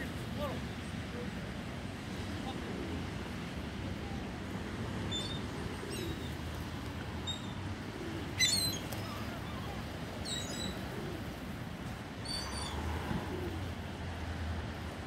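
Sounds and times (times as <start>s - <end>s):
gulls calling: 7.2s - 11.4s.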